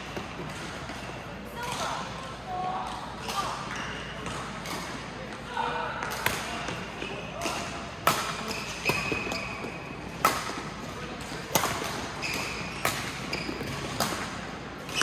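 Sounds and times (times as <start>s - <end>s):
shoe squeaks on court floor: 8.5s - 10.0s, 12.2s - 13.9s
racket hitting shuttlecock: 10.2s - 15.0s.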